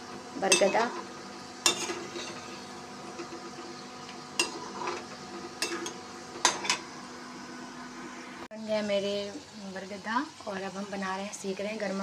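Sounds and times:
dough deep-frying in oil: 0.0 - 12.0
metal spoon scraping a pan: 0.5 - 3.7, 4.3 - 6.8.

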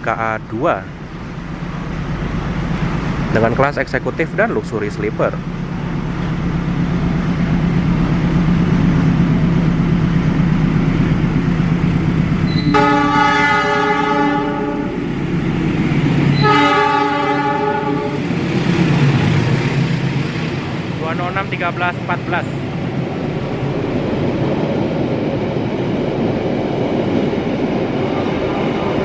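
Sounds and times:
diesel locomotive engine droning: 0.0 - 29.0
train horn blasts: 12.5 - 15.0, 16.3 - 18.2.

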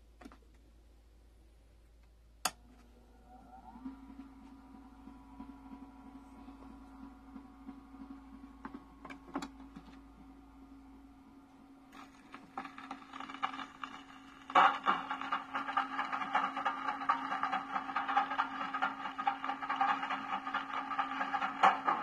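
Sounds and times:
record surface hiss and crackle: 0.0 - 22.0
record player motor hum: 2.4 - 22.0
music from small speaker: 12.0 - 22.0.

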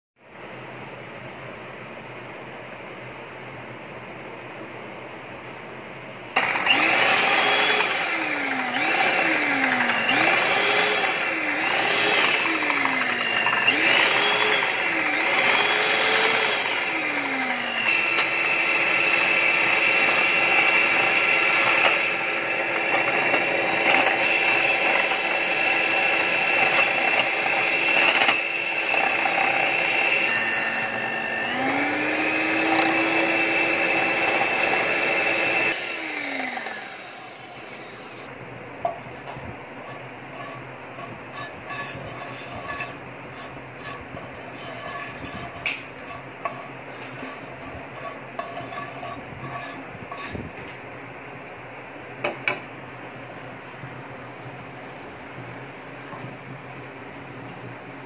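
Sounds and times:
electric hand mixer whine: 6.4 - 38.3.

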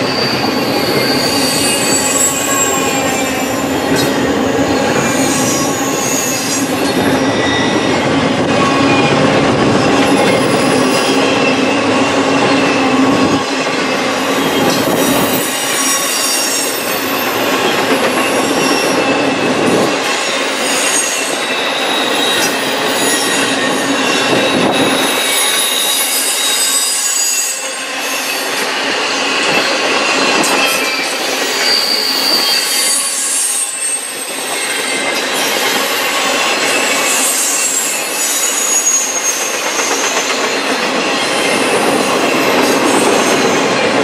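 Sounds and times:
high-pitched wheel squeal: 0.0 - 9.2, 14.2 - 19.9, 20.5 - 40.6
train wheels rolling on rails: 0.0 - 44.0.

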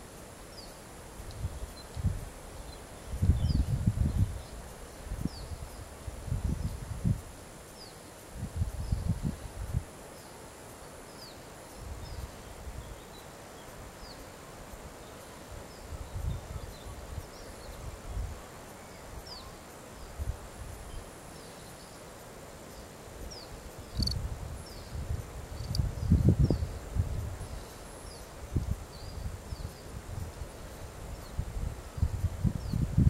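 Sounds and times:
wind gusts on microphone: 1.1 - 7.5, 8.2 - 10.0, 13.7 - 21.1, 23.2 - 33.0.

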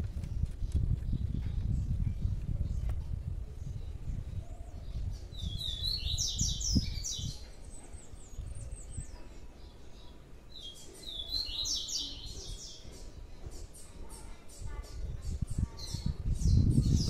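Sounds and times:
small songbird chirping: 0.1 - 17.0.

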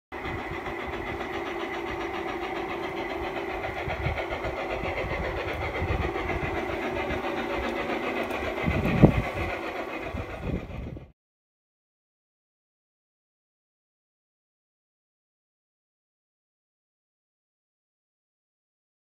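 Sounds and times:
model locomotive drone: 0.1 - 11.2.

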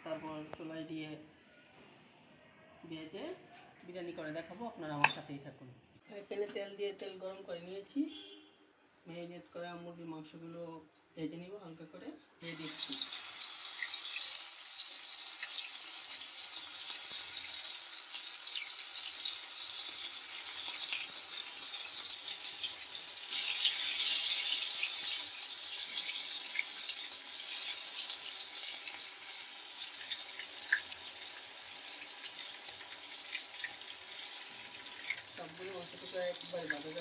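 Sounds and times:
chicken deep-frying in oil: 12.4 - 37.0.

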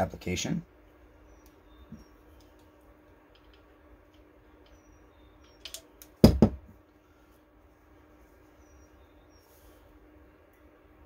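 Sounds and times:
grease gun knocking on workbench: 6.2 - 6.6.

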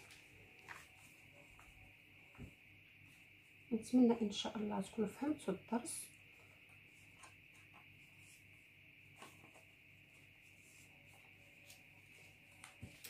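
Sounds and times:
paper rustling: 0.0 - 1.7, 6.4 - 13.0
faint steady hiss: 0.0 - 13.0.

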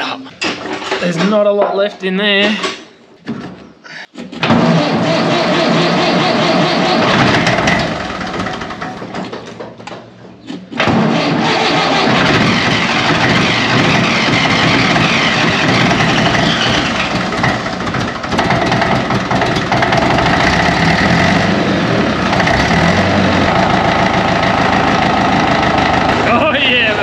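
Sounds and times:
tractor engine running: 4.6 - 9.5, 10.9 - 27.0.

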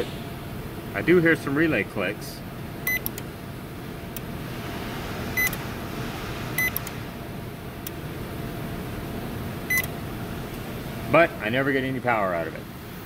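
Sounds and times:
microwave keypad beeps: 2.9 - 3.1, 5.4 - 5.6, 6.6 - 6.8, 9.7 - 9.9.

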